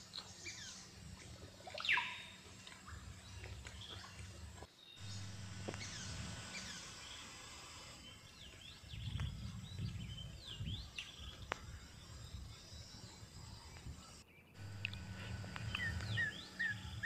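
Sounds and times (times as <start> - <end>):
outdoor background: 0.0 - 17.0
wild birds chirping: 0.0 - 17.0
low rumbles: 14.6 - 17.0.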